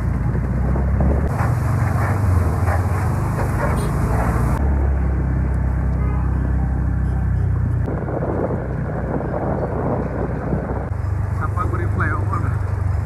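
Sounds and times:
motorbike engine hum: 0.0 - 13.0
traffic: 0.0 - 13.0
water sprinkler spray hissing: 1.3 - 4.6.

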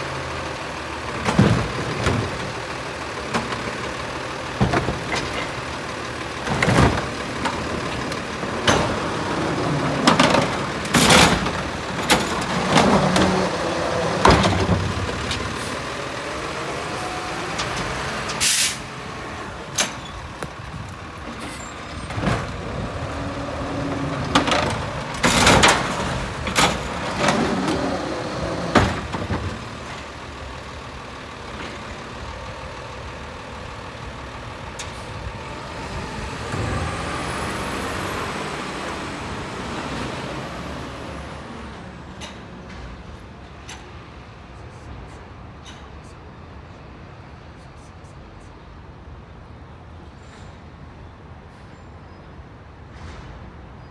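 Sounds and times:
garbage truck engine running: 0.0 - 44.0
bangs and clanks of cart dumping: 1.0 - 3.8, 4.4 - 16.6, 19.7 - 30.1
sharp air hiss: 18.4 - 18.9.

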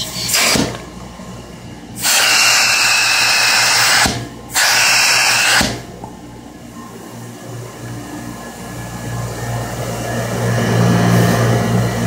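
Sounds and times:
air rushing into vacuum hose: 0.0 - 0.8, 2.0 - 5.8
low turbine hum: 0.0 - 12.0.

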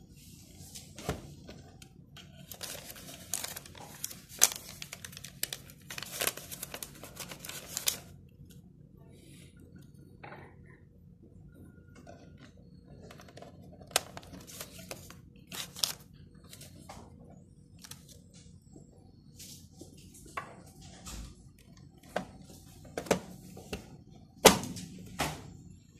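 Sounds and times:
paper rustling: 2.3 - 8.1, 13.0 - 16.8.

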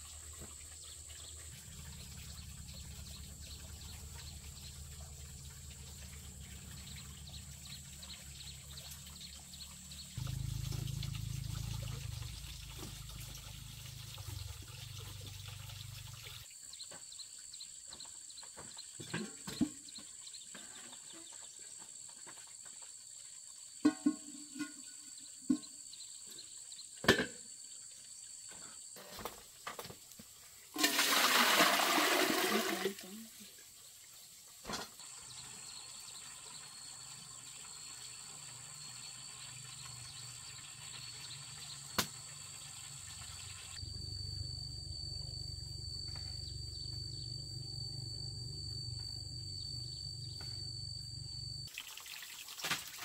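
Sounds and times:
steady low hum: 43.8 - 51.7.

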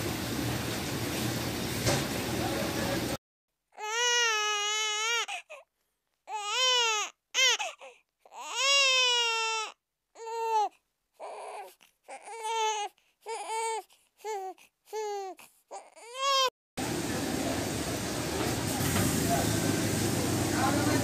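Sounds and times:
small child crying: 3.8 - 5.7, 6.3 - 16.5.

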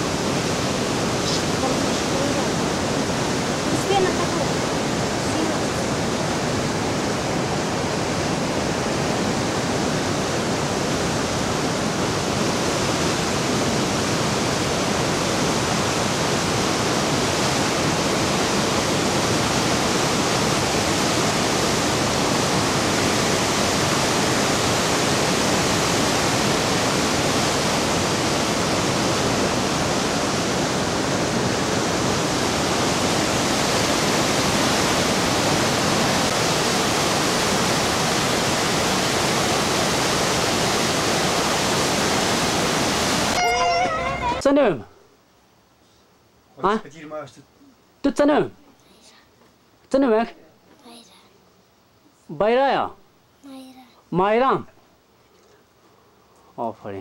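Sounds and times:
whitewater rushing: 0.0 - 44.8.

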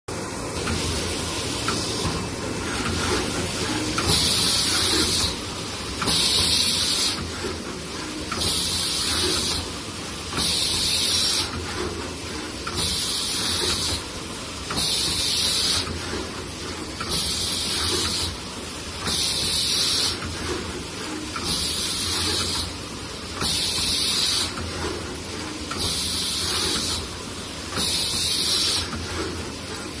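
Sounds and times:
machine hiss: 0.2 - 30.0.

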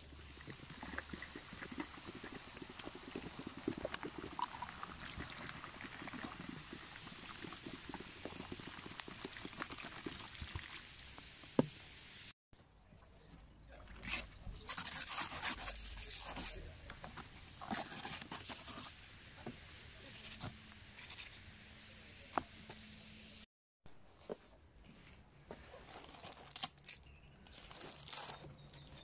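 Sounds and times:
liquid sloshing: 0.0 - 10.8
vinegar fizzing on baking soda: 0.0 - 12.2.

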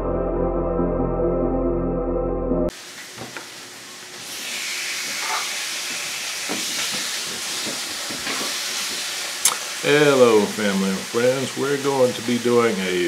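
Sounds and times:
food sizzling in a frying pan: 2.7 - 13.0.

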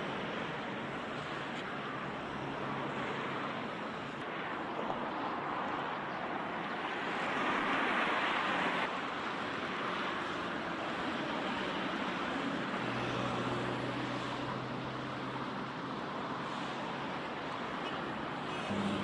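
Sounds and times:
city road traffic: 0.0 - 19.0.

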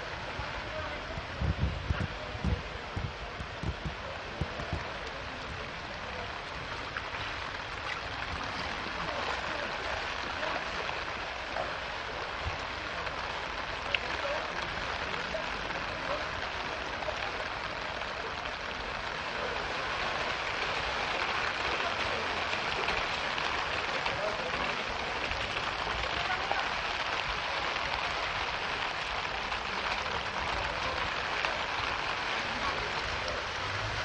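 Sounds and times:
rain and floodwater running: 0.0 - 34.0.

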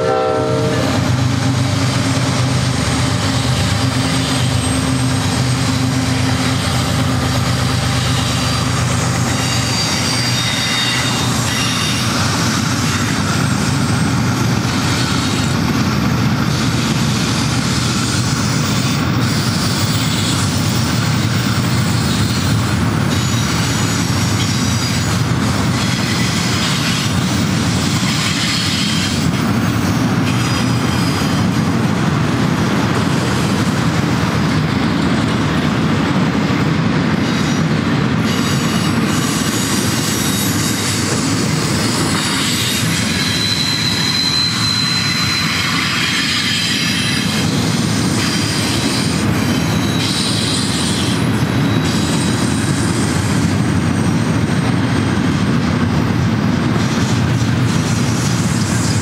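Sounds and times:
train wheels rumbling on rail: 0.0 - 59.0
high wheel squeals: 3.2 - 16.9, 30.2 - 31.6, 37.4 - 54.4.

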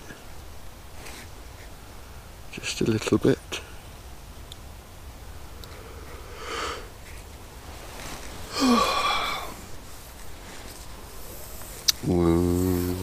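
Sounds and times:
man wheezy breath: 8.4 - 9.8
man sniffing: 8.4 - 13.0
man low groan: 8.5 - 9.6, 12.0 - 13.0.

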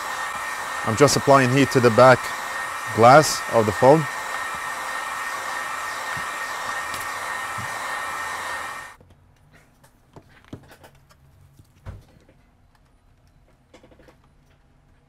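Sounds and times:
heat gun blowing air: 0.0 - 9.0.

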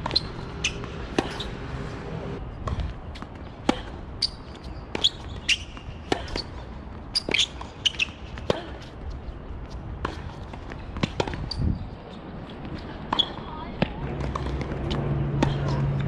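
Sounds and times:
shoes squeaking on court: 0.0 - 2.0, 2.6 - 15.8
tennis balls struck by rackets: 10.0 - 11.5.

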